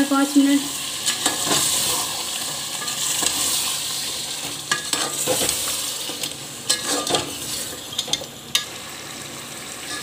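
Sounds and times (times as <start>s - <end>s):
meat sizzling in oil: 0.0s - 10.0s
metal spatula scraping pot: 4.7s - 8.3s.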